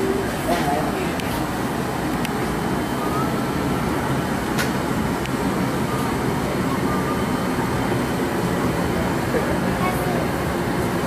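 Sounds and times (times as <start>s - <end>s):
gas burner and blower roar: 0.0s - 11.0s.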